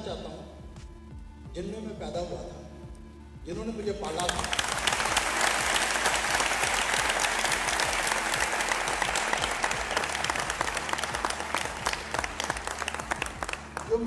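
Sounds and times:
audience applauding: 4.2s - 14.0s.

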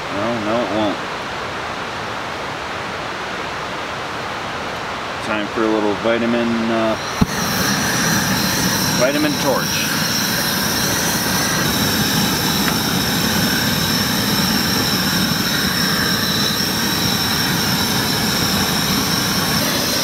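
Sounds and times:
propane torch burning: 6.5s - 20.0s.

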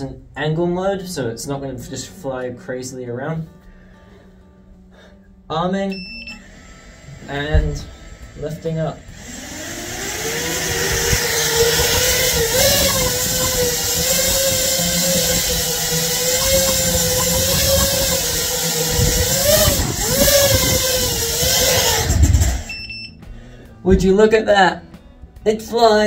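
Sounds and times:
drone motors buzzing whine: 6.2s - 23.2s.

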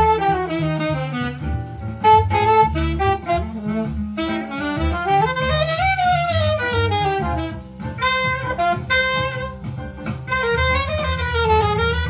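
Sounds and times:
bass: 0.0s - 12.0s
drums: 0.0s - 12.0s
saxophone playing jazz melody: 0.0s - 12.0s.

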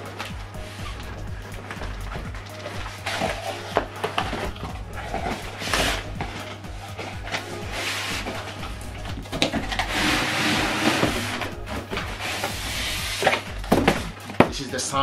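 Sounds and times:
foam and cardboard scraping: 2.6s - 8.8s, 9.4s - 14.4s.

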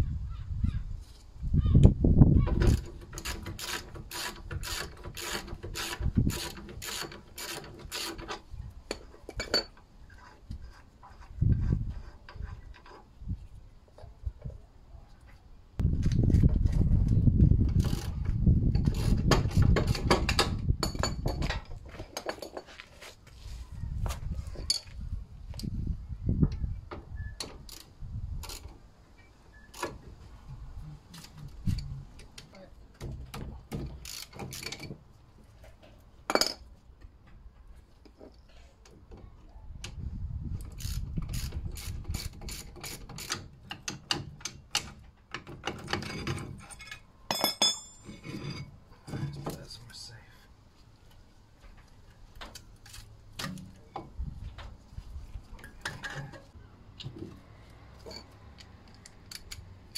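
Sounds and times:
ratchet wrench clicking: 34.0s - 34.8s
sharp metal clinks: 46.7s - 48.2s.

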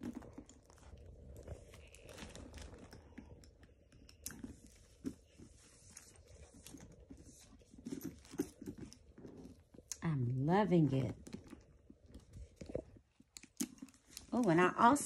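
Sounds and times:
plastic packaging crinkling: 0.0s - 3.6s.

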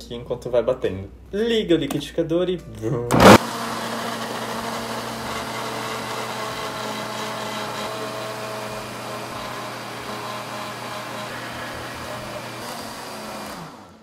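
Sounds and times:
blender running: 3.2s - 14.0s.

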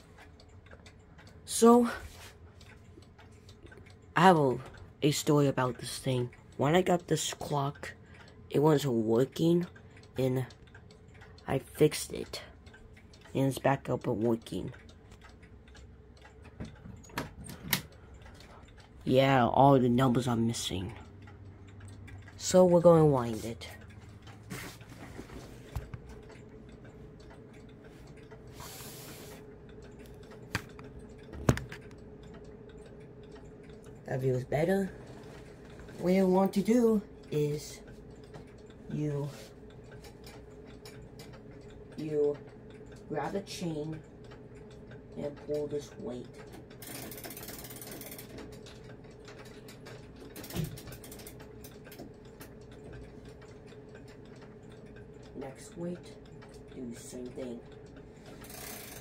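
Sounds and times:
faint steady hum: 0.0s - 59.0s
pendulum clocks ticking: 0.0s - 59.0s
clock chain ratchet clicking: 35.9s - 59.0s.

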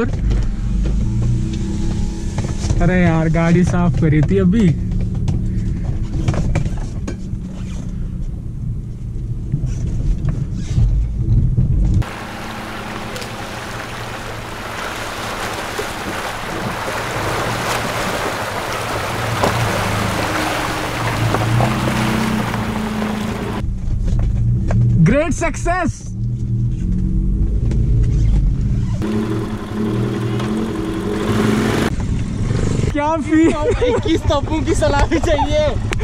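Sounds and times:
car engine and tyres rumbling: 0.0s - 33.2s
stream water rushing: 12.0s - 23.6s, 29.0s - 31.9s.

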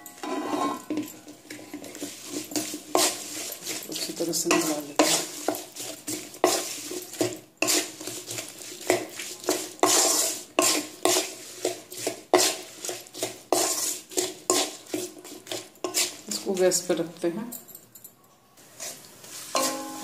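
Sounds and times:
spatula scraping metal pan: 0.0s - 16.8s, 18.7s - 20.0s.

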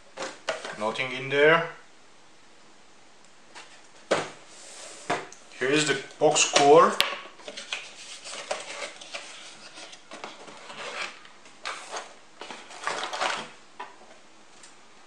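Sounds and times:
cardboard box rustling: 7.4s - 13.6s.

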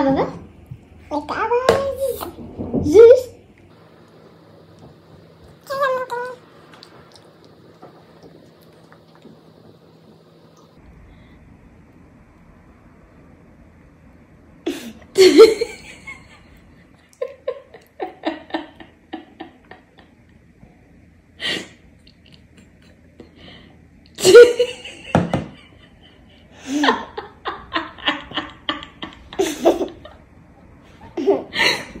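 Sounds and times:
person laughing: 24.2s - 30.2s.

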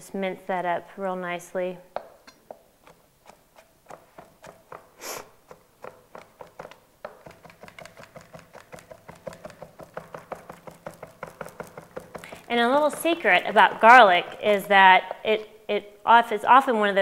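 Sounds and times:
knife chopping on wooden board: 2.0s - 15.2s
short hiss: 5.0s - 5.3s.

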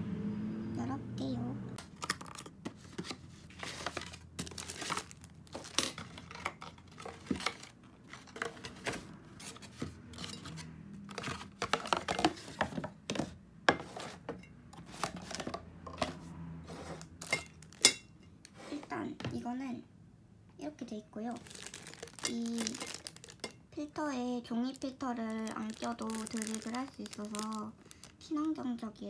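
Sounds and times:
cardboard and plastic wrap rustling: 1.9s - 17.9s, 21.2s - 23.6s, 24.6s - 28.8s.

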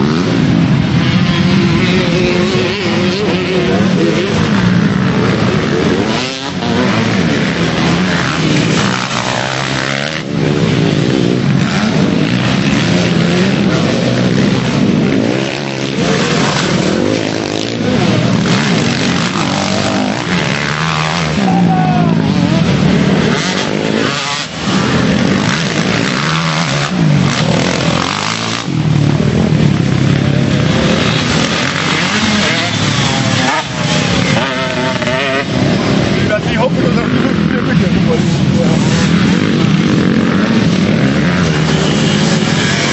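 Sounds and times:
motocross bike engines revving: 0.0s - 42.9s.

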